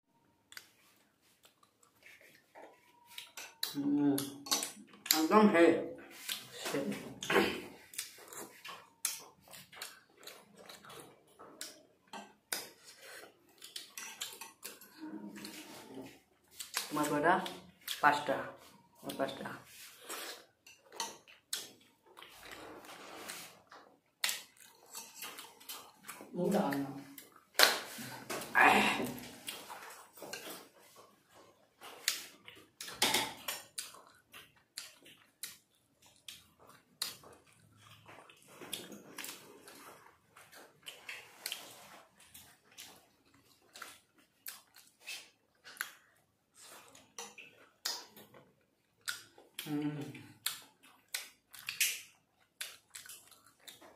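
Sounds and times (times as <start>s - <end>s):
chewing: 0.2s - 5.3s, 6.0s - 53.9s.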